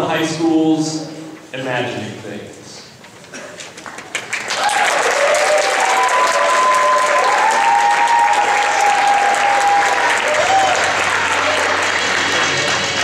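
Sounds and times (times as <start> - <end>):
audience applause: 3.7 - 13.0
crowd cheering and whooping: 4.4 - 13.0.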